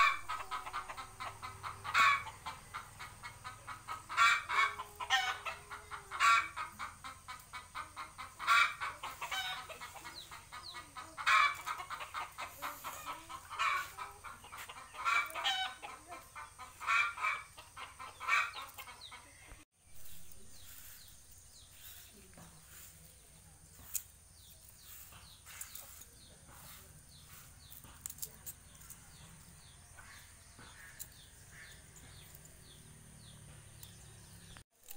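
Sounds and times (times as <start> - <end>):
chickens clucking: 0.0 - 34.9.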